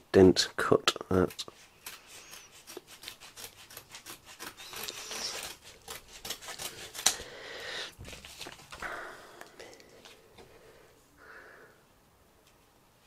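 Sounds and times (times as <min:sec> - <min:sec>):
scissors snipping paper envelope: 0:01.3 - 0:07.2.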